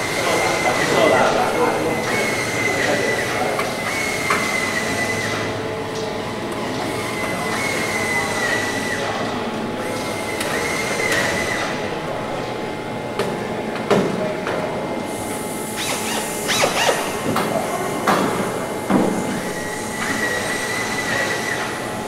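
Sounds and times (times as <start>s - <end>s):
pneumatic drill whining: 0.0s - 5.5s, 15.1s - 18.0s.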